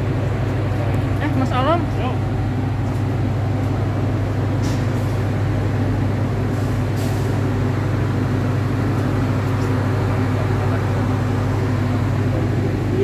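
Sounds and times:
train diesel engine idling: 0.0 - 13.0.

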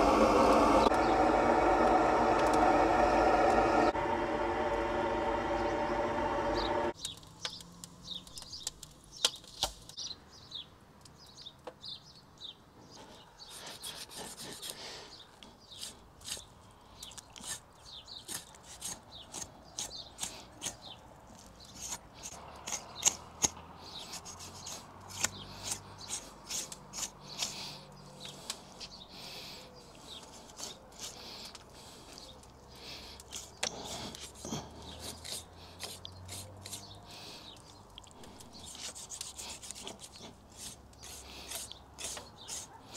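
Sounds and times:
knife scraping hide: 17.4 - 20.8, 21.6 - 27.7, 30.3 - 31.5, 33.2 - 37.0, 38.2 - 42.9.

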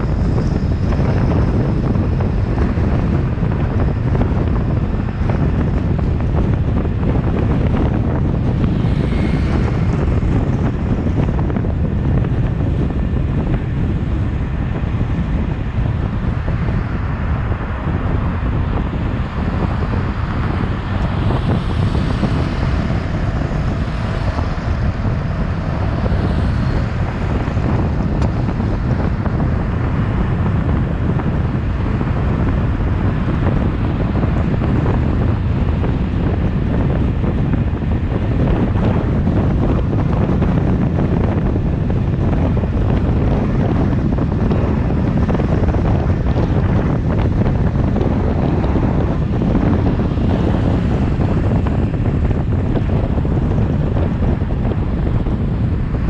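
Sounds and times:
road and tyre rumble: 0.0 - 56.0
wind rushing over microphone: 0.0 - 56.0.

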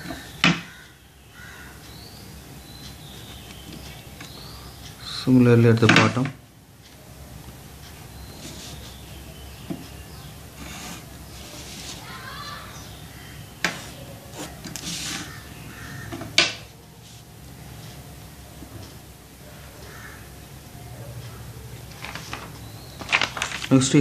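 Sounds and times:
plastic rulers sliding over paper: 10.6 - 12.0, 14.3 - 15.3.

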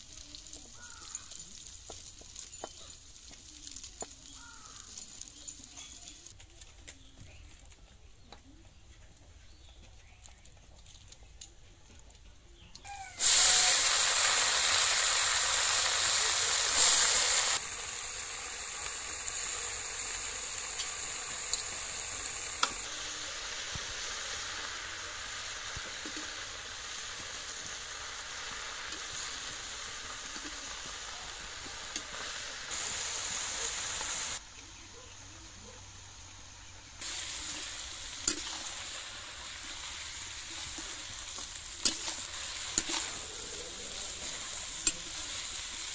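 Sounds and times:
spinach sizzling in a wok: 0.0 - 6.4, 12.8 - 45.9
spatula scraping a wok: 37.0 - 45.9.

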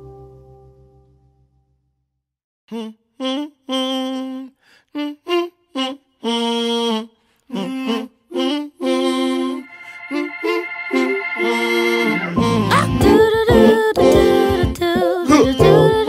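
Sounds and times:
person humming a melody: 2.7 - 9.6, 12.2 - 16.0.

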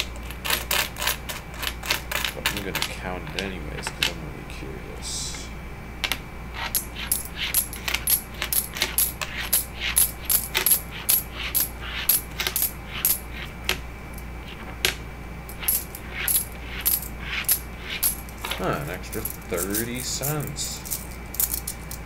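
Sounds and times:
coins clinking together: 6.7 - 13.2, 15.5 - 22.0.

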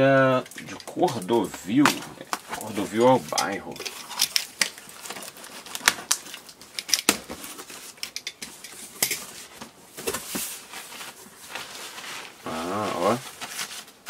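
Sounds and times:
soft rustle of packing: 7.3 - 14.0.

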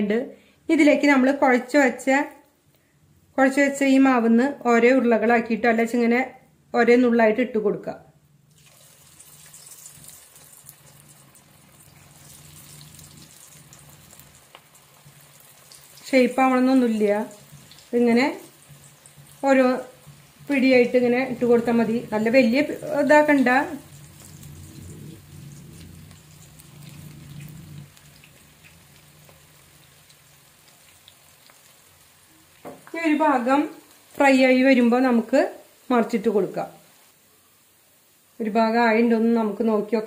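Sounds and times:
oil sizzling while deep-frying: 8.4 - 40.0.

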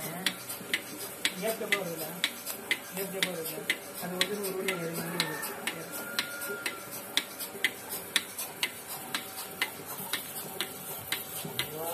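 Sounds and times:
milking machine pulsator clicking: 0.0 - 11.9.

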